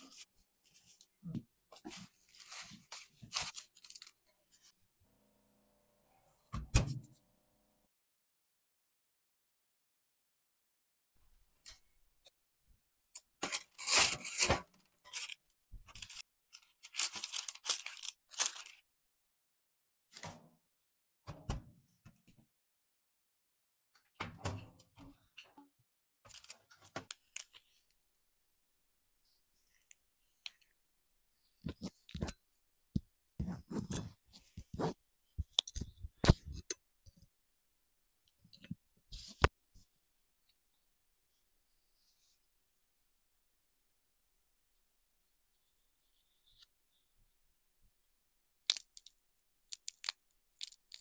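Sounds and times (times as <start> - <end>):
parchment paper rustling: 0.0 - 4.8, 13.4 - 18.9, 26.3 - 28.0.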